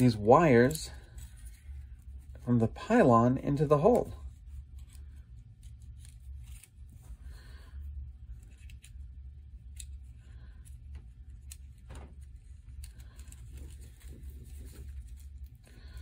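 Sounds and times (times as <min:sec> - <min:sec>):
low steady hum: 0:00.0 - 0:16.0
wires rustling: 0:00.0 - 0:16.0
faint clicks of plastic parts: 0:08.2 - 0:16.0.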